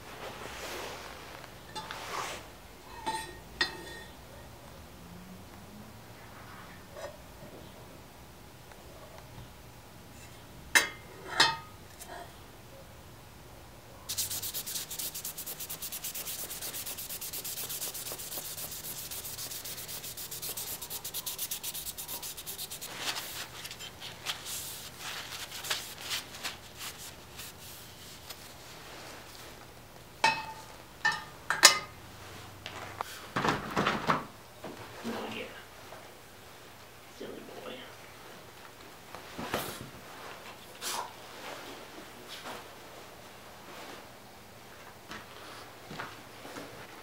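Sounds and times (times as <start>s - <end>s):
gloved hand rubbing steel blade: 14.1s - 28.4s.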